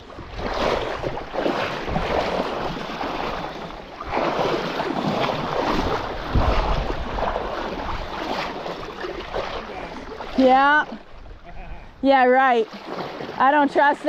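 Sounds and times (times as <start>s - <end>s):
wind buffeting microphone: 0.0s - 12.1s
water rushing in stream: 0.0s - 14.0s.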